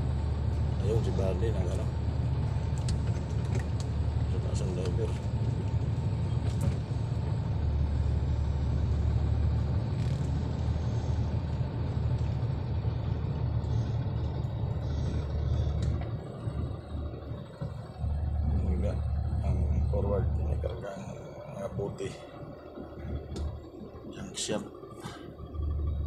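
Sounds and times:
vehicle engine and road noise: 0.0 - 26.0
faint clicks and rattles: 2.6 - 4.0.

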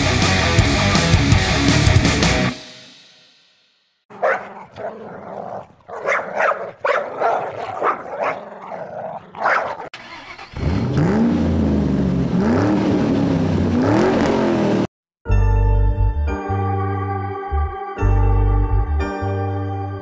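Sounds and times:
dog barking: 4.1 - 10.0
engine revving: 8.7 - 14.9.

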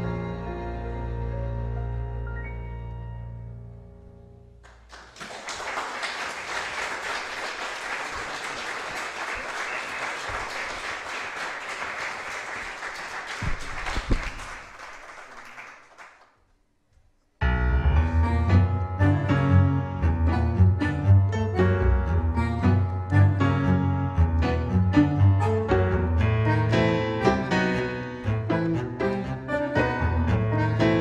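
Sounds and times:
tango ensemble playing: 0.0 - 3.7, 17.4 - 31.0
tango ensemble held chord: 0.0 - 4.6, 17.4 - 31.0
audience applauding: 4.6 - 16.4.

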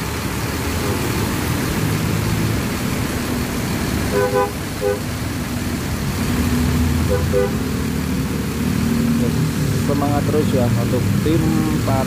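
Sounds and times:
passing traffic: 0.0 - 12.0
vehicle horn toots: 4.1 - 5.0, 7.1 - 7.6.

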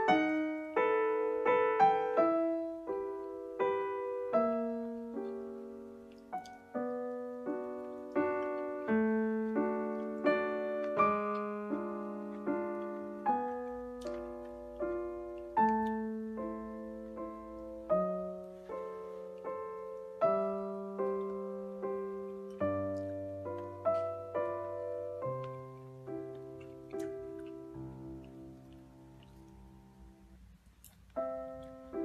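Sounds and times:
slow piano melody: 0.0 - 32.0.

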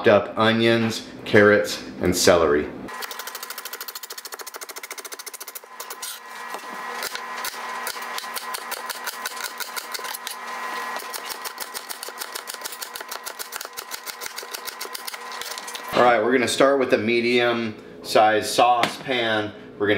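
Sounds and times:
knife chopping vegetables: 3.0 - 15.9.

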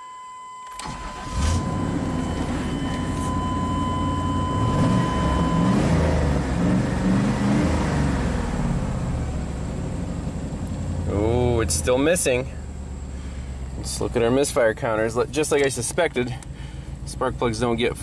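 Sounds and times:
engine cranking and starting: 0.7 - 3.6
misfiring engine idling: 0.8 - 5.5, 8.5 - 18.0.

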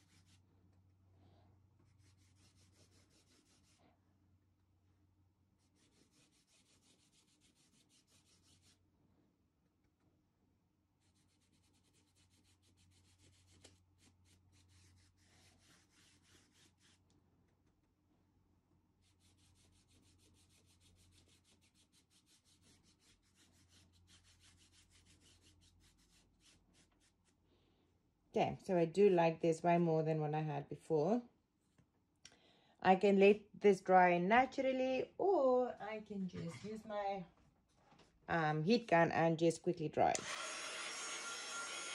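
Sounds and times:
paintbrush scrubbing fabric: 0.0 - 0.6, 1.8 - 4.0, 5.5 - 8.9, 11.0 - 17.1, 18.9 - 27.5.

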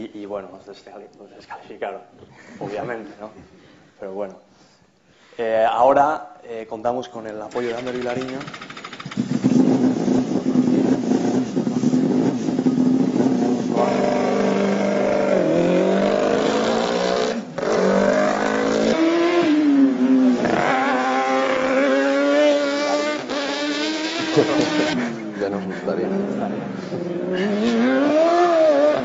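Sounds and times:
race car engine revving: 7.5 - 29.0.

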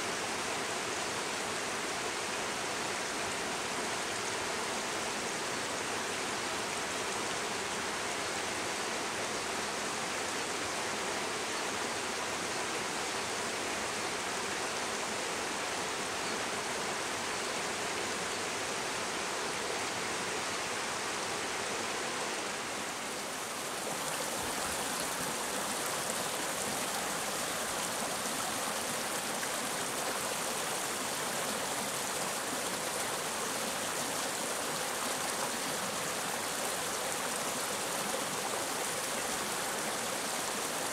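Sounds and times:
stream running over rocks: 0.0 - 40.9.

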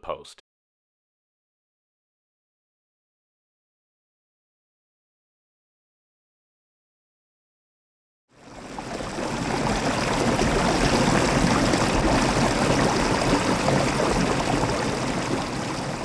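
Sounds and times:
stream water running: 8.4 - 16.0.

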